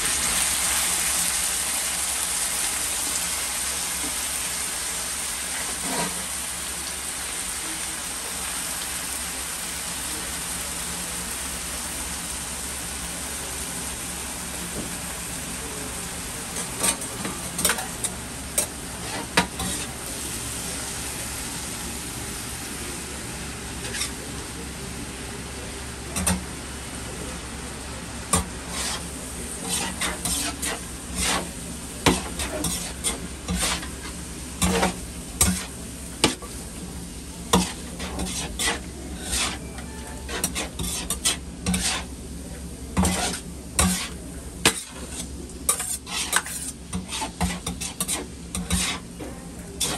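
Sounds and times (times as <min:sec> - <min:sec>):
food sizzling on a griddle: 0:00.0 - 0:49.9
metal utensils scraping griddle: 0:05.6 - 0:06.3, 0:16.6 - 0:20.0, 0:23.8 - 0:24.2, 0:28.4 - 0:35.7, 0:37.5 - 0:42.1, 0:43.0 - 0:49.1.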